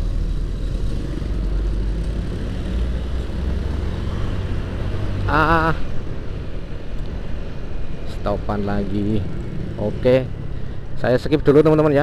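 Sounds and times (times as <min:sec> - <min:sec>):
motorcycle and street traffic rumble: 0:00.0 - 0:12.0.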